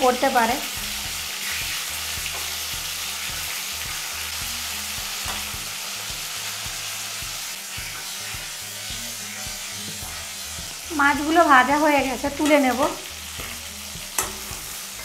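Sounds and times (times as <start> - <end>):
fish frying in oil: 0.0 - 15.0
spatula clicking against pan: 14.2 - 14.7.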